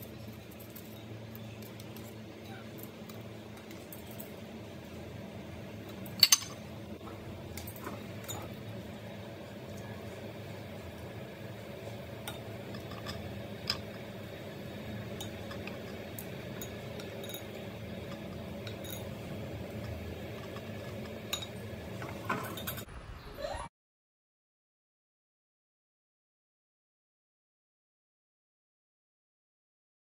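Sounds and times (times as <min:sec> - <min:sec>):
steady low hum: 0:00.0 - 0:23.2
glass bowl and plate clinking: 0:06.0 - 0:06.6, 0:07.6 - 0:08.6, 0:15.2 - 0:19.2, 0:19.8 - 0:22.8.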